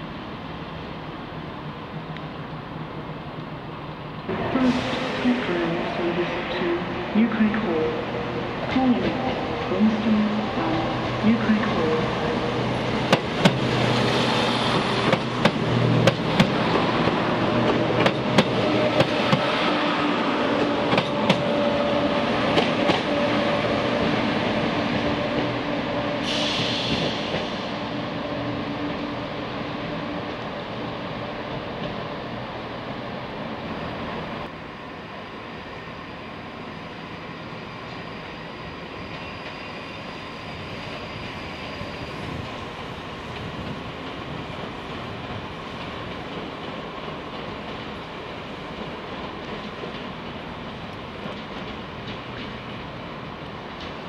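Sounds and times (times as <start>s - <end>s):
diesel train engine hum: 0.0s - 54.0s
train wheels clicking over rail joints: 13.1s - 19.5s, 43.3s - 53.0s
air hiss: 26.2s - 27.8s.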